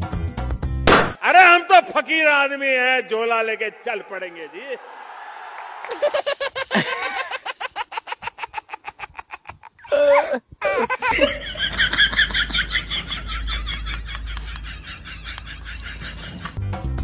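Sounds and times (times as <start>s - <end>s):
high-pitched rapid laughter: 5.9s - 16.6s.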